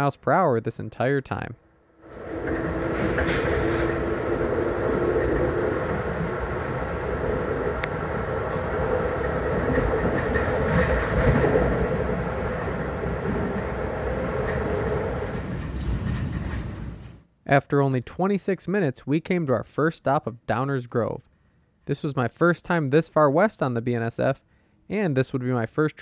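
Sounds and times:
steady hum: 2.0 - 15.9
train wheels rumbling on rails: 2.0 - 17.3.

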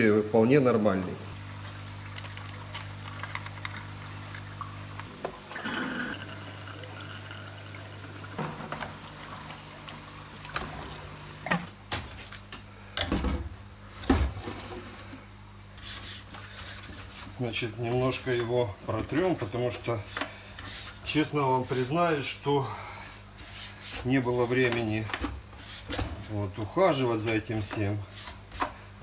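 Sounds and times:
low steady hum: 0.0 - 29.0
water trickling and splashing: 1.3 - 11.6.

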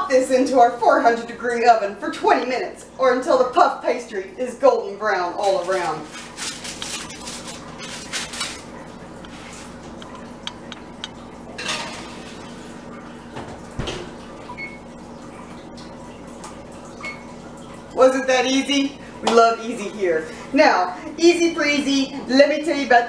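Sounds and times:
metal baking sheet clattering: 5.4 - 8.7.

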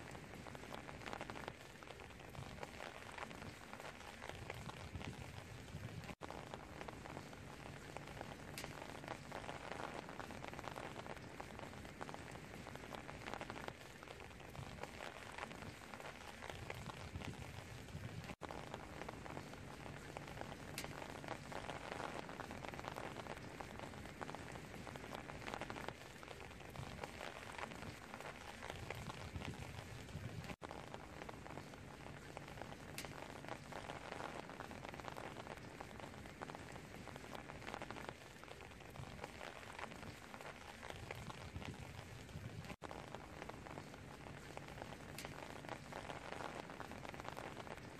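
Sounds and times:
rain falling on leaves: 0.0 - 47.9.

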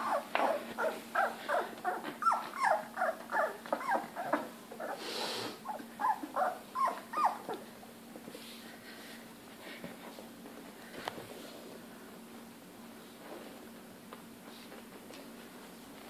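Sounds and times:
puppies whining and squealing: 0.0 - 5.0, 5.6 - 7.7.

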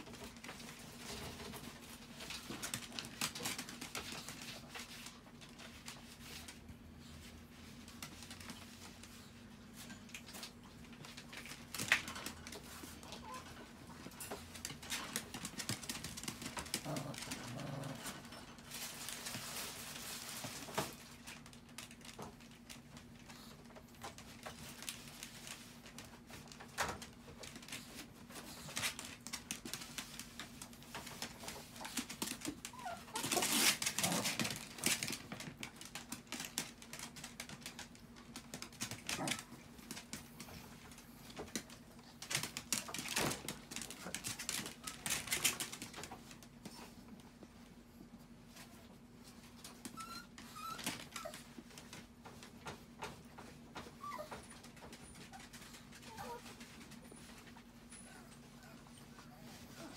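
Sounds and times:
dog claws scratching on plastic: 24.0 - 46.4
dogs whimpering: 32.5 - 34.2, 49.9 - 51.6, 53.8 - 56.6, 57.8 - 59.9.

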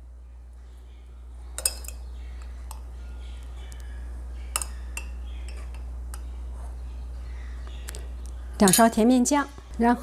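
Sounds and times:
low steady hum: 0.0 - 10.0
metal spoon clinking on glass: 1.6 - 2.8, 4.5 - 6.3, 8.6 - 9.0.

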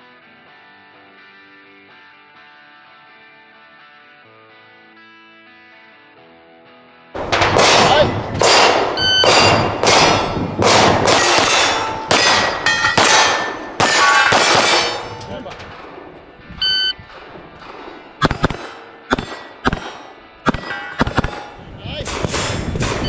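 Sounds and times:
pistol shots ringing steel plates: 7.2 - 16.1, 17.0 - 23.0
shot timer beep: 9.0 - 9.6, 16.6 - 17.0.

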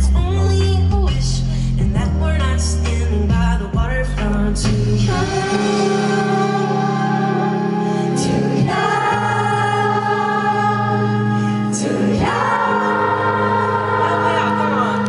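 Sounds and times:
wordless singing: 4.2 - 15.0.

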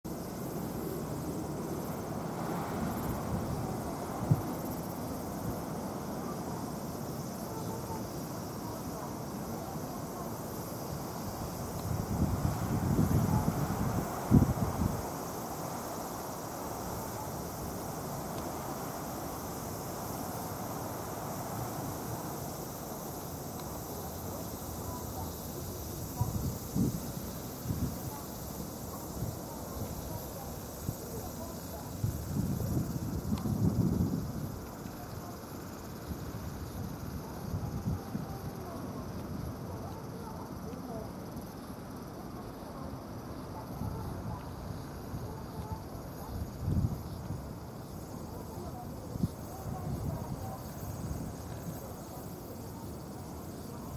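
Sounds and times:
high pulsing insect drone: 0.1 - 53.9
wind buffeting microphone: 10.7 - 15.4, 24.9 - 35.0, 45.6 - 48.1, 49.0 - 51.9.

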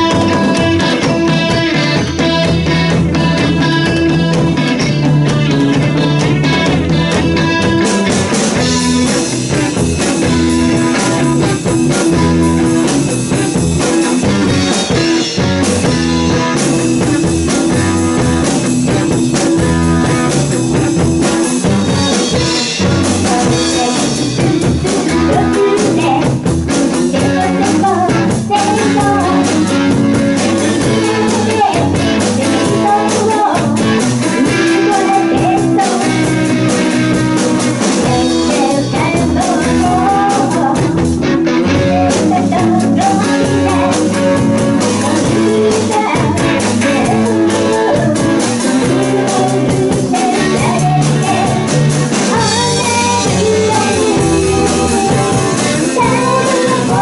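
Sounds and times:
woman singing: 0.0 - 2.5, 22.3 - 37.2, 37.9 - 41.0, 41.6 - 57.0
live rock band playing: 0.0 - 57.0.

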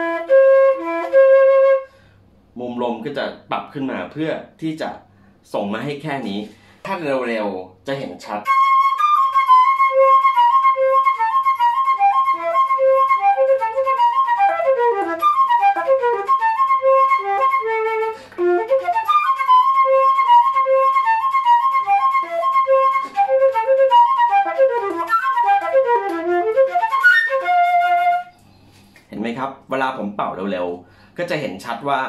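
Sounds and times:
flute fast passage: 8.4 - 28.3.

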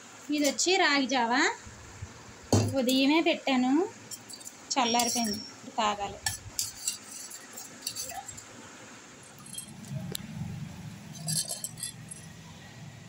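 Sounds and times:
spoon clinking on metal vessel: 4.1 - 8.5, 9.3 - 9.9, 11.1 - 12.3.

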